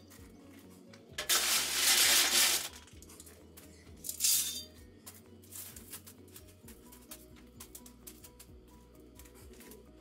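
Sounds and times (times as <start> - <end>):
soft background music: 0.0 - 10.0
garden tool scraping gravel: 1.2 - 2.7.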